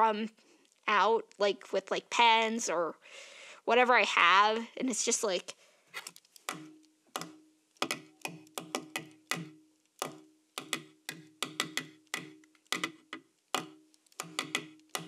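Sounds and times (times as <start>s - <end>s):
pen tapping drum rhythm: 6.4s - 15.0s.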